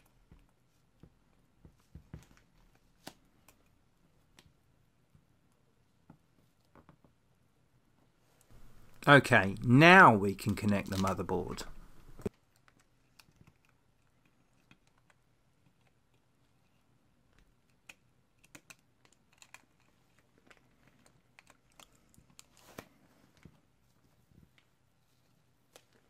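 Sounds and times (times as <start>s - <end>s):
small clicks and taps of parts: 12.2s - 22.5s.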